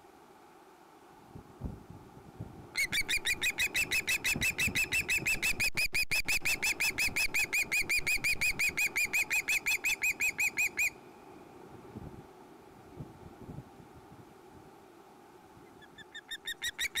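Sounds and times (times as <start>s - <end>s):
osprey shrill squealing calls: 2.8s - 11.0s, 15.8s - 17.0s.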